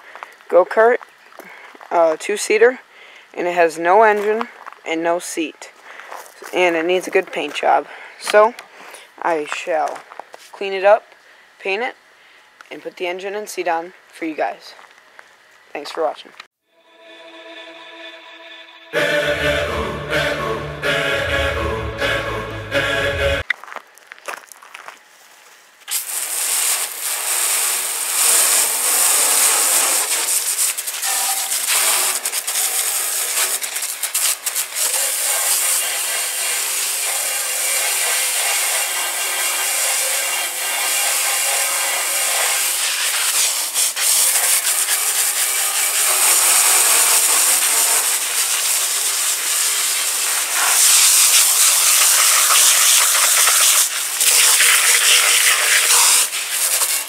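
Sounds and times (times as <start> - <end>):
pressure washer spraying: 25.9 - 57.0.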